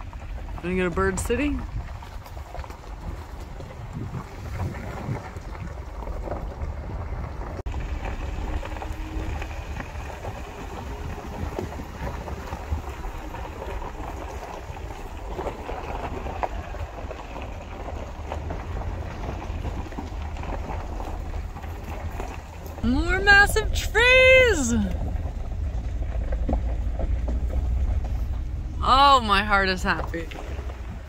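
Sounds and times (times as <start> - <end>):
car driving slowly: 0.0 - 31.0.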